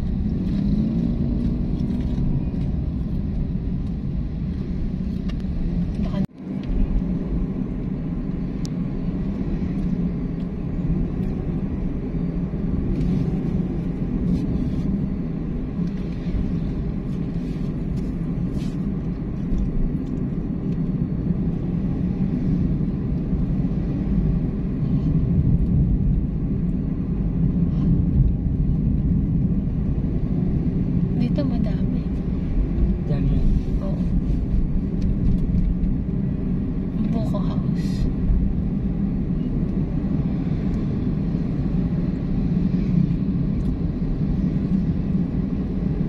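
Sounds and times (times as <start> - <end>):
car engine rumble: 0.0 - 46.0
road noise: 0.0 - 46.0.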